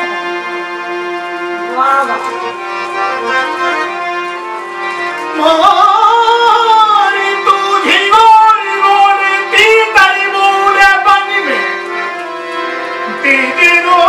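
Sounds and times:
harmonium chords: 0.0s - 14.0s
man singing folk song: 5.4s - 11.7s, 13.2s - 14.0s.

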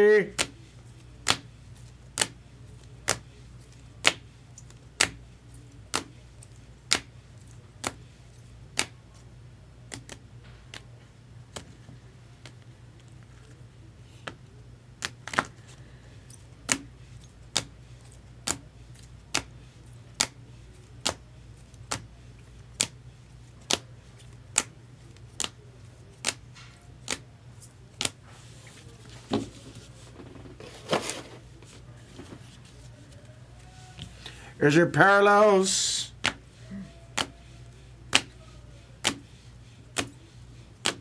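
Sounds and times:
cards shuffling softly: 16.6s - 34.5s.

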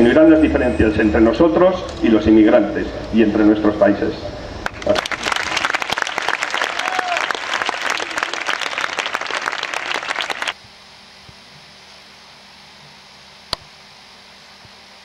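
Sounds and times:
crowd applauding: 4.6s - 10.6s.

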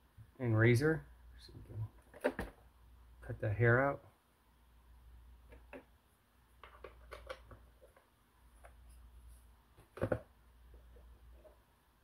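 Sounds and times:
plastic clicks and knocks: 6.6s - 8.8s, 9.8s - 10.3s.

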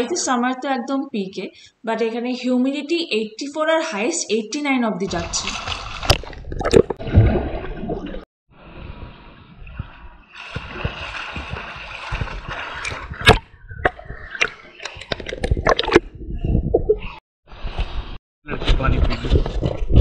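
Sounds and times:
pool water splashing: 5.1s - 13.5s.

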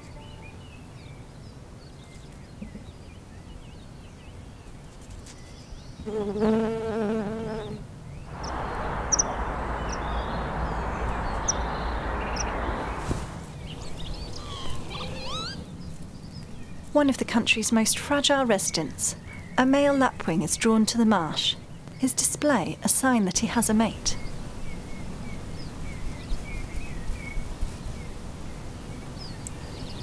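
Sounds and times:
insect buzzing: 6.0s - 13.4s
wind noise with low rumble: 8.2s - 17.4s
small bird chirping: 8.4s - 15.8s.

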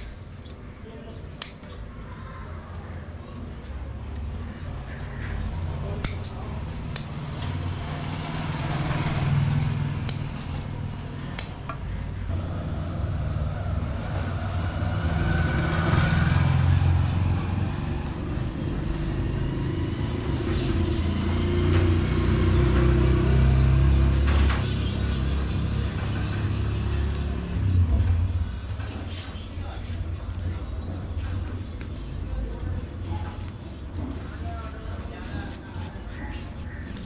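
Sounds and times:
scissors cutting leather: 0.0s - 1.8s, 4.1s - 8.2s, 8.8s - 11.8s
vehicle engine rumble: 3.5s - 37.0s.

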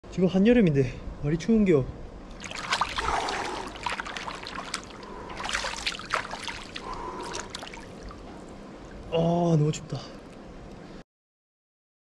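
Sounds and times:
pool water splashing: 2.3s - 9.2s.

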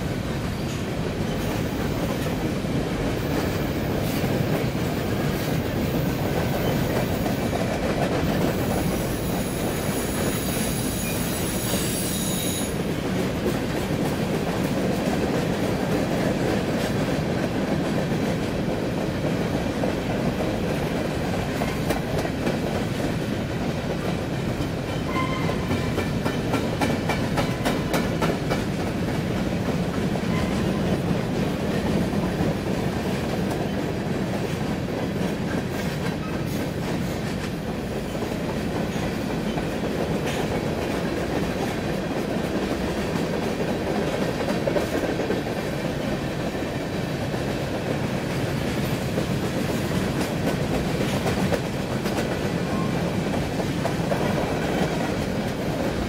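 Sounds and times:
steel wheels rumbling on rail: 0.0s - 56.0s
wheels clacking over rail joints: 21.4s - 32.6s.

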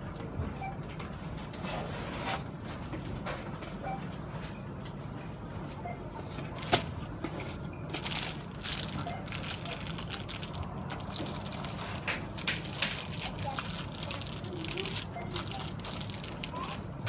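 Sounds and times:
steady low hum: 2.6s - 17.0s
clicks and crackles: 8.4s - 17.0s.

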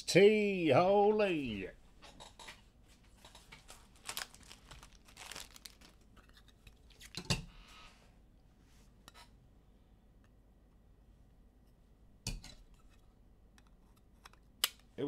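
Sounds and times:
trading cards rustling and clicking: 3.3s - 7.2s.

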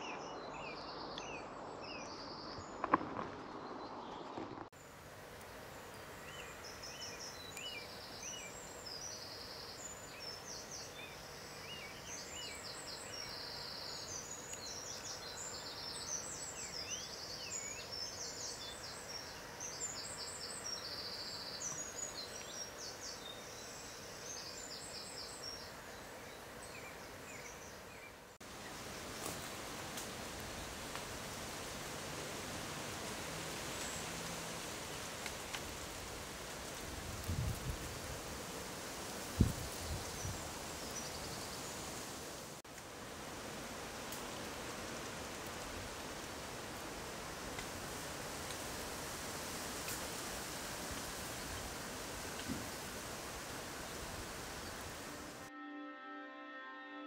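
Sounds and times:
small birds singing and calling: 0.0s - 4.6s, 5.8s - 29.6s
steady rushing hiss: 1.0s - 55.5s.

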